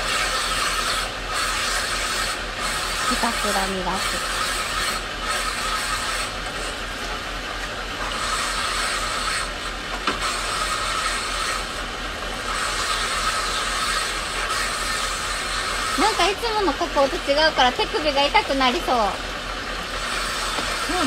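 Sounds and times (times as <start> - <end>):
stone grinding rasp: 0.0 - 6.8, 8.0 - 11.8, 12.4 - 16.4, 20.0 - 21.0
motor hum: 0.0 - 21.0.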